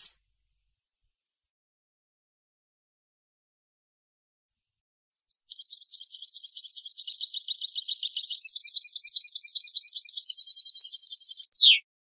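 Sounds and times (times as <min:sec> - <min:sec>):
goldfinch twittering song: 0:05.2 - 0:11.9.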